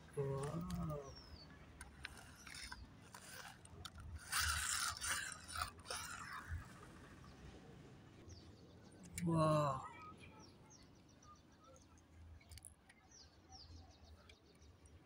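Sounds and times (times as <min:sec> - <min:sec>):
toy wheels scraping on concrete: 0:00.2 - 0:07.0.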